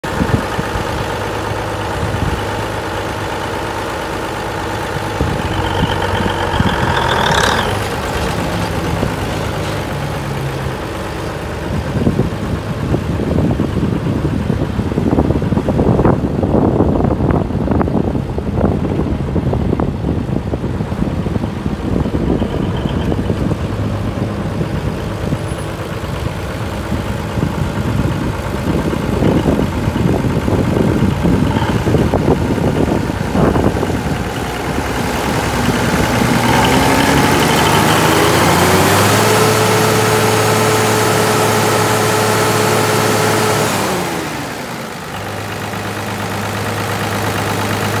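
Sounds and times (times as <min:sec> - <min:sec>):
tractor diesel engine revving: 0:00.0 - 0:17.3, 0:17.9 - 0:48.0
wind noise: 0:04.9 - 0:41.1.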